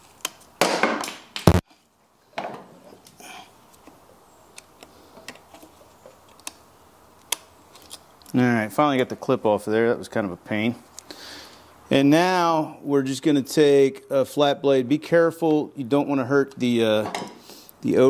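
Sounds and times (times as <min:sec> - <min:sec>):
sharp knock: 0:00.7 - 0:01.6.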